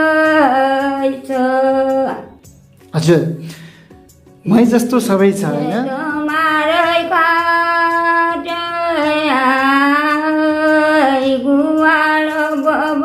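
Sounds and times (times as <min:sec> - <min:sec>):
elderly woman singing unaccompanied: 0:00.0 - 0:02.4, 0:05.5 - 0:13.0.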